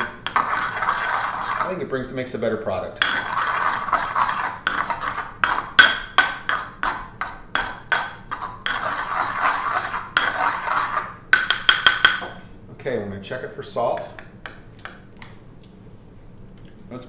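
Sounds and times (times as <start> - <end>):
pestle grinding in a mortar: 0.0 - 1.8, 3.0 - 12.4
pestle tapping in a mortar: 3.0 - 10.7, 11.4 - 12.4.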